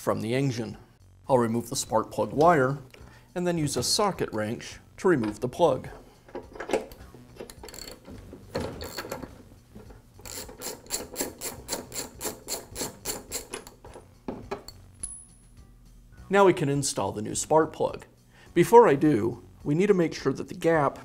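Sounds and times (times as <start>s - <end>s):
ratchet wrench clicking: 6.8s - 8.0s, 10.2s - 13.8s.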